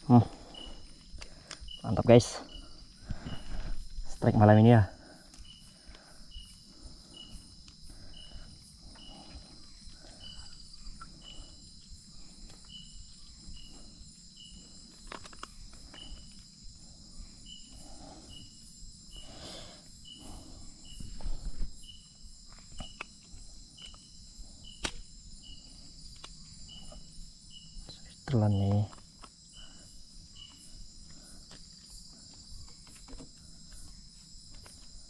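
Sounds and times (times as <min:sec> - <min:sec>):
insect chirp: 0:00.0 - 0:35.0.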